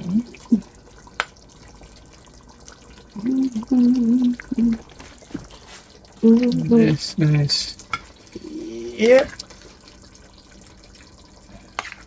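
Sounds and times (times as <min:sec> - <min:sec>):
person humming: 0:03.2 - 0:04.8, 0:08.4 - 0:09.0.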